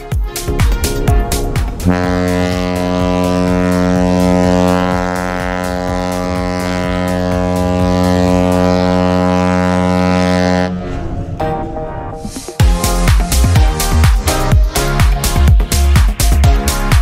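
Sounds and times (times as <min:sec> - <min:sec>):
ship horn blast: 0:00.0 - 0:12.4.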